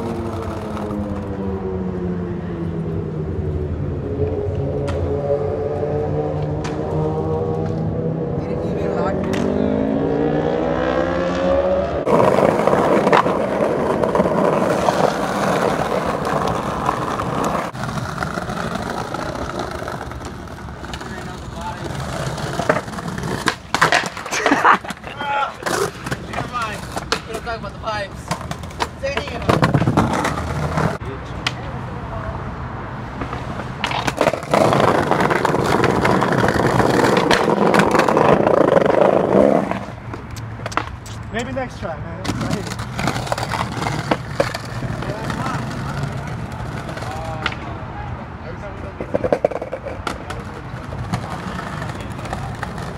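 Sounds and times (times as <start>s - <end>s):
skateboard wheels rolling on pavement: 0.0s - 52.9s
skateboard clack: 12.0s - 31.8s, 33.2s - 41.6s, 42.2s - 47.8s, 48.8s - 52.9s.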